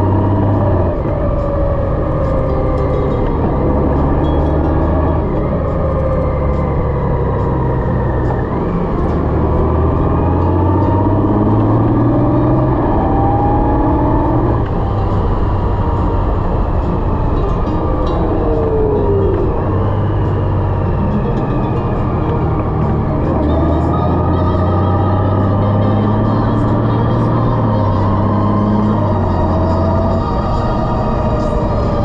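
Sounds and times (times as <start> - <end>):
motorcycle engine running: 0.0 - 32.0
wind and road noise: 0.0 - 32.0.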